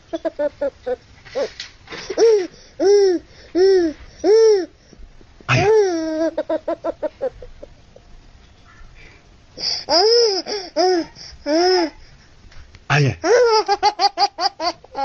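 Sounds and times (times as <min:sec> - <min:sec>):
baby laughing: 0:00.0 - 0:04.7, 0:05.5 - 0:07.8, 0:09.6 - 0:12.0, 0:13.2 - 0:15.0.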